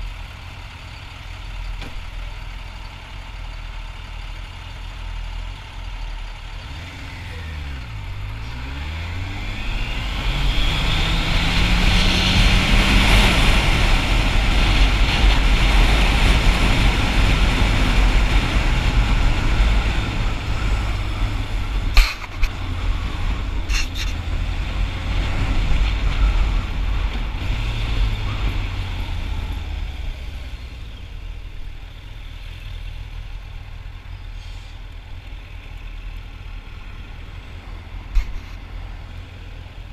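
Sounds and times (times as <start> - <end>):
motorcycle engine accelerating: 6.6 - 33.8.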